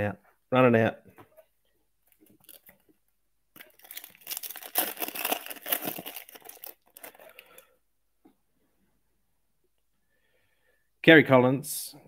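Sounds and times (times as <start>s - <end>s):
foil wrapper tearing and crinkling: 3.6s - 7.6s.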